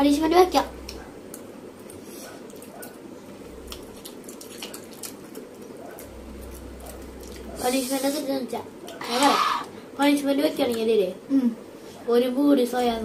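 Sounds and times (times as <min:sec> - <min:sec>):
wet chewing sounds: 0:00.8 - 0:08.0
room hiss: 0:05.0 - 0:13.0.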